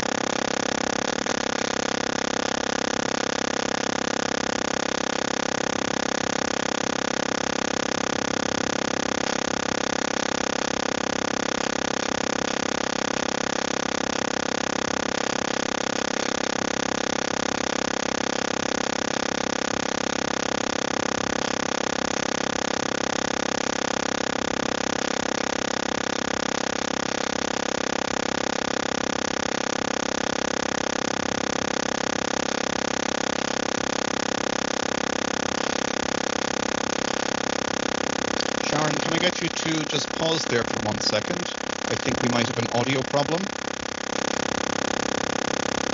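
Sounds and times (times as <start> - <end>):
electronic hiss with whining tones: 0.0 - 45.9
person speaking: 38.4 - 43.6.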